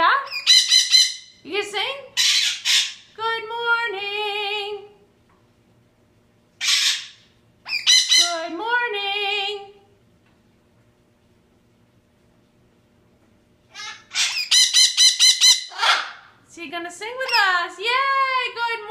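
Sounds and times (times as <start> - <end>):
macaw squawking: 0.3 - 1.3, 2.2 - 3.0, 6.6 - 8.4, 13.7 - 16.3.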